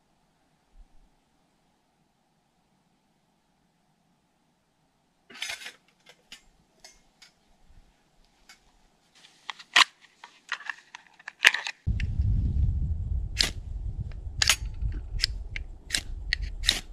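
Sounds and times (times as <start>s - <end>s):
metal camping gear clicking: 9.6s - 11.9s.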